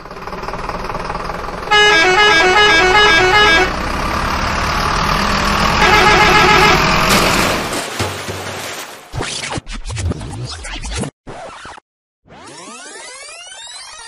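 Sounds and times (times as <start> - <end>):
truck engine running: 0.0 - 7.7
musical horn tune: 1.7 - 3.8, 5.8 - 7.0.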